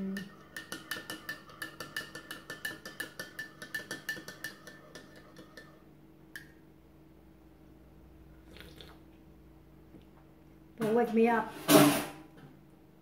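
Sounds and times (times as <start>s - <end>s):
teaspoon clinking in ceramic mug: 0.2s - 5.8s.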